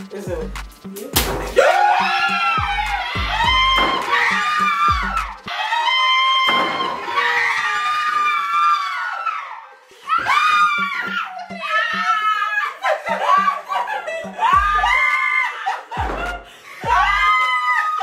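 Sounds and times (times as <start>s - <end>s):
people screaming and shrieking: 1.4s - 18.0s
people laughing: 10.2s - 18.0s.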